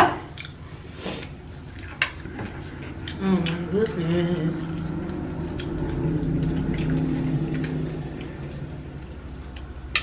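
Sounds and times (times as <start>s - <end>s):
low steady hum: 0.0s - 10.0s
wet chewing smacks: 0.3s - 2.0s, 4.7s - 9.8s.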